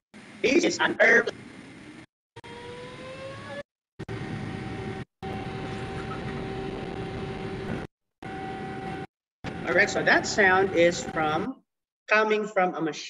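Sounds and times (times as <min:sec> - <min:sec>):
jet engine whine and roar: 0:02.4 - 0:11.4.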